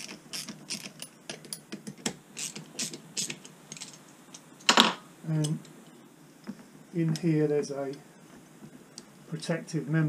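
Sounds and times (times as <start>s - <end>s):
ratchet spanner clicking: 2.4s - 3.9s.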